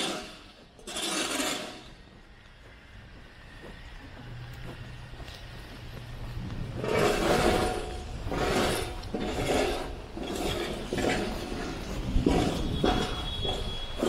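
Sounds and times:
footsteps crunching on snow: 1.8s - 9.7s.

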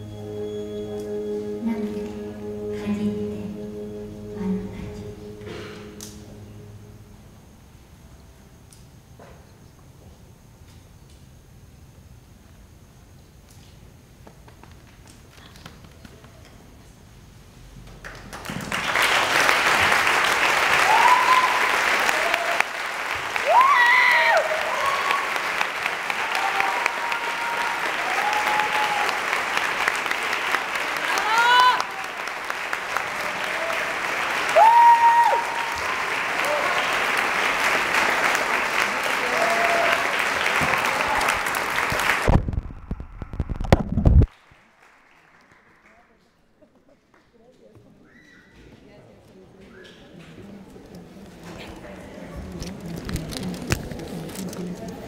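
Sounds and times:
audience applauding: 17.8s - 46.5s
people cheering: 18.4s - 43.7s.

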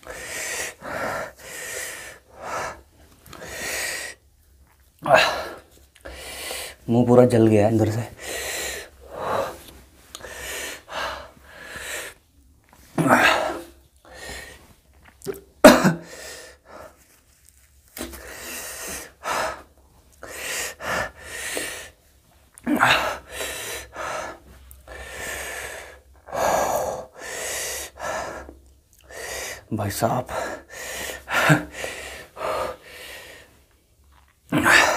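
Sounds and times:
man sneezing: 15.6s - 16.2s.

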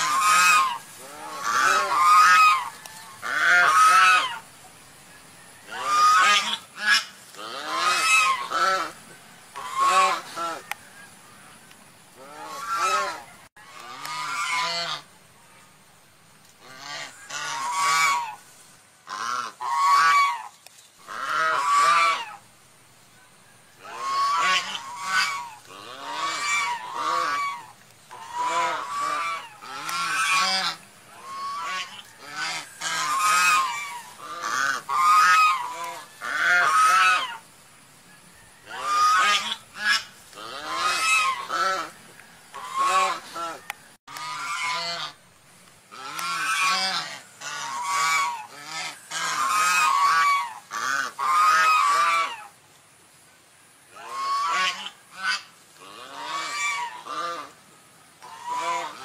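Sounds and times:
swan calls: 0.0s - 4.4s, 9.6s - 10.7s, 23.8s - 37.5s, 38.7s - 45.2s, 45.9s - 52.6s, 53.9s - 57.6s, 58.2s - 59.0s.

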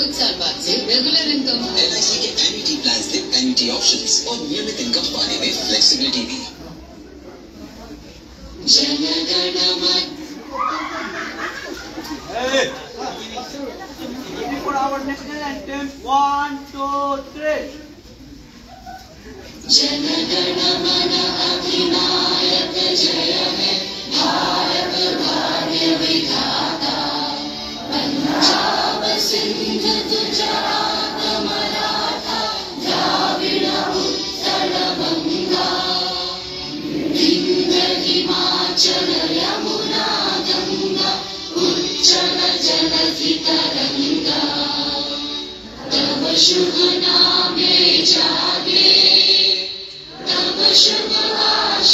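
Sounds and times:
group of children singing: 8.6s - 11.1s, 19.6s - 51.9s.

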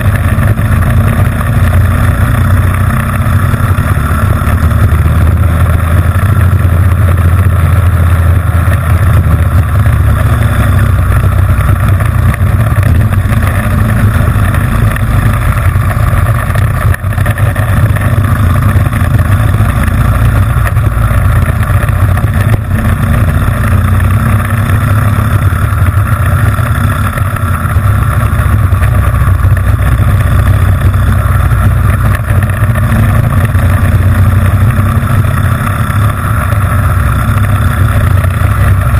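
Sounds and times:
kart engine running hard: 0.0s - 38.9s.

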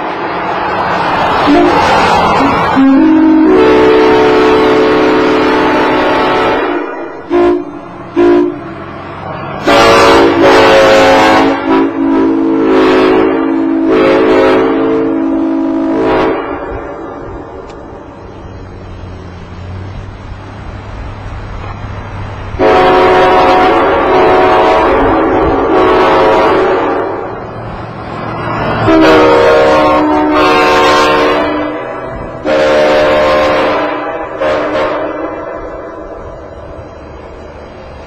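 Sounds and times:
locomotive air horns: 1.4s - 8.8s, 9.6s - 17.6s, 22.6s - 27.4s, 28.4s - 36.5s.

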